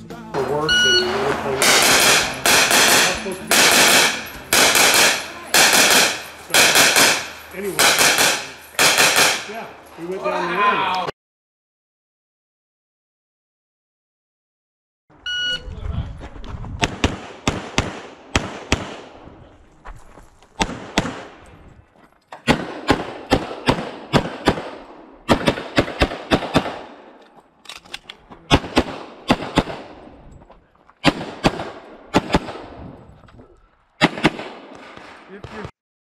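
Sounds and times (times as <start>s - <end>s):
pistol shots: 1.6s - 9.6s, 16.8s - 19.2s, 20.6s - 21.4s, 22.4s - 27.1s, 28.5s - 30.0s, 31.0s - 32.7s, 34.0s - 35.7s.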